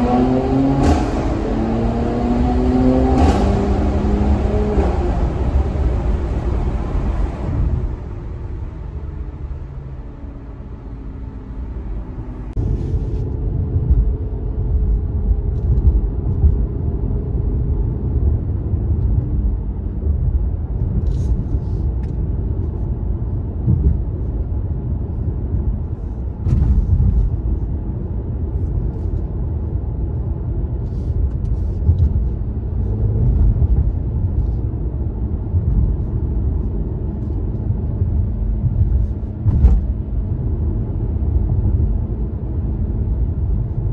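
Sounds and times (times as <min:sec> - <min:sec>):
car engine rumbling in cabin: 0:00.0 - 0:43.9.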